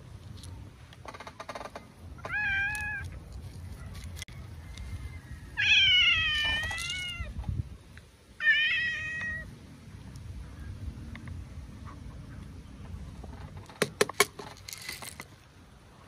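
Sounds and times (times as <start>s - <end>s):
cat meowing: 2.2s - 3.1s, 5.6s - 7.4s, 8.4s - 9.5s.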